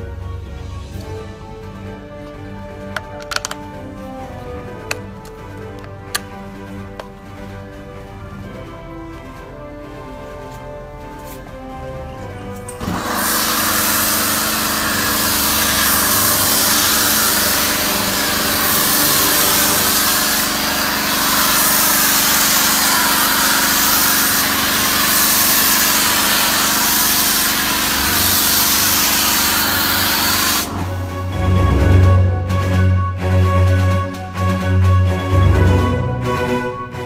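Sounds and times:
foam gun hissing: 12.8s - 31.3s.

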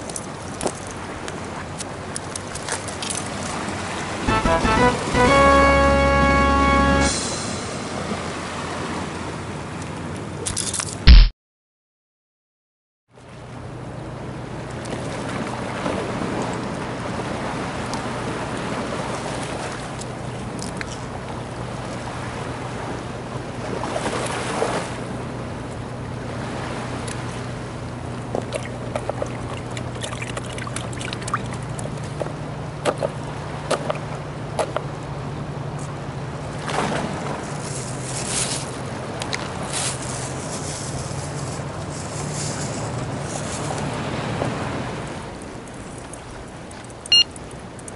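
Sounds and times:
water washing at jetty: 0.0s - 5.5s, 13.2s - 47.9s
distant engine drone: 4.0s - 9.8s.

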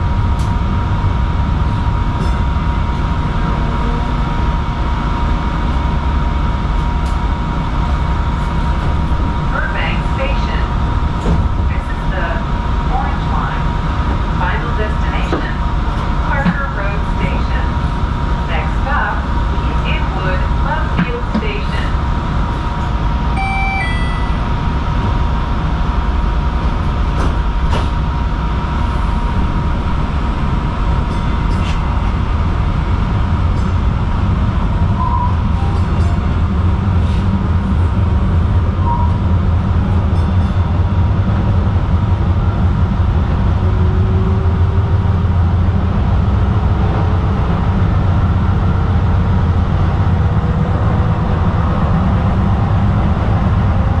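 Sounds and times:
wheels rumbling on rail: 0.0s - 54.0s.

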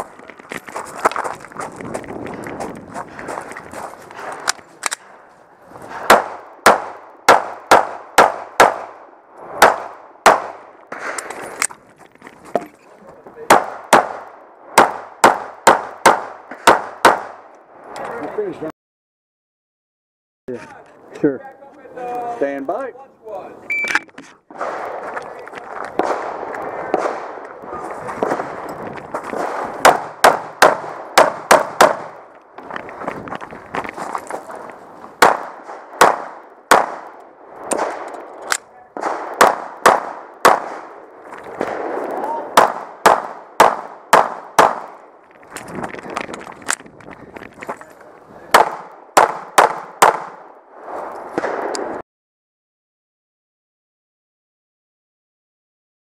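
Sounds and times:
pistol shots: 6.0s - 9.0s, 9.6s - 10.6s, 13.5s - 17.4s, 29.4s - 32.2s, 35.2s - 38.1s, 39.0s - 41.0s, 41.6s - 45.0s, 48.5s - 50.5s.

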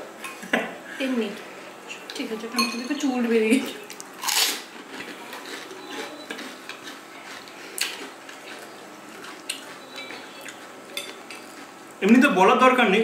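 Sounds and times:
spoons clinking on glass bowls: 2.6s - 3.0s, 9.9s - 11.5s.

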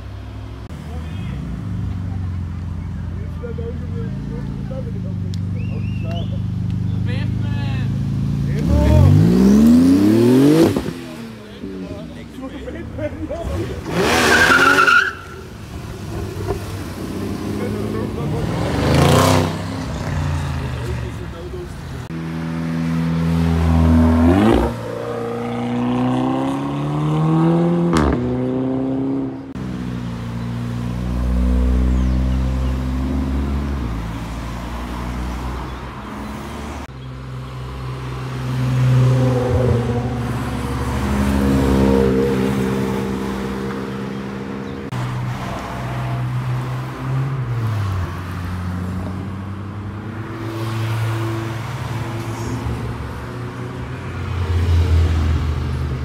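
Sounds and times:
cars accelerating past: 8.1s - 11.8s, 15.7s - 21.3s, 22.0s - 56.0s.

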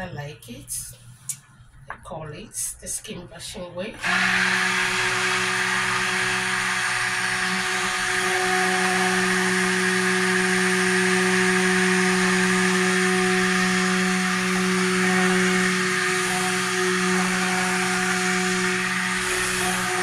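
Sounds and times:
stick blender motor hum: 4.0s - 20.0s.

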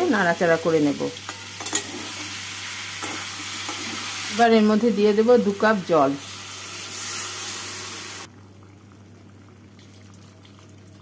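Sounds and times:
water hissing in a hot pan: 0.0s - 8.3s.

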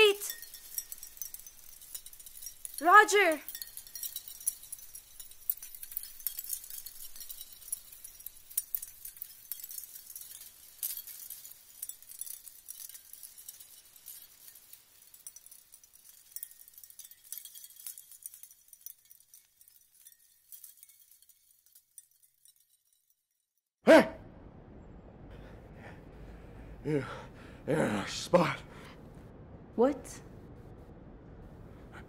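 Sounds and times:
glassy tinkling and clinking: 0.0s - 23.6s.

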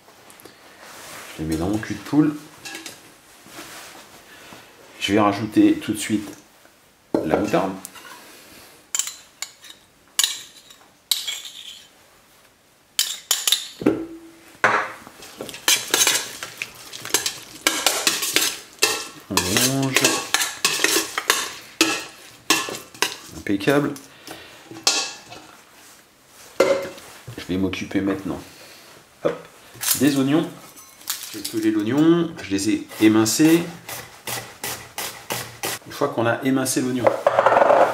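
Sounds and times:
utensil clinking on metal bowl: 9.0s - 11.8s, 15.3s - 23.3s, 30.7s - 31.7s.

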